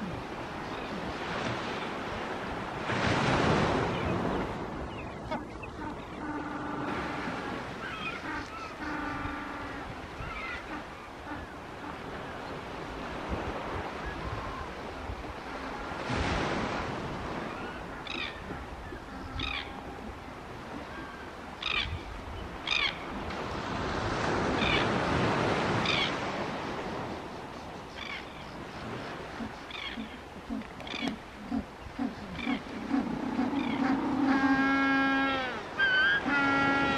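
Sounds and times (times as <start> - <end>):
beach surf rushing: 0.0 - 5.1
low pulsing calls: 27.6 - 36.9.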